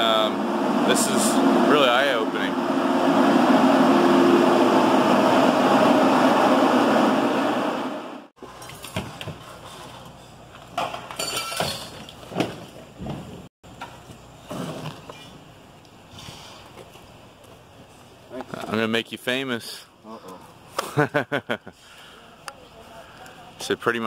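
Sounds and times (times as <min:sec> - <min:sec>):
mechanical fan drone: 0:00.0 - 0:08.3
clinks and knocks: 0:10.8 - 0:12.2.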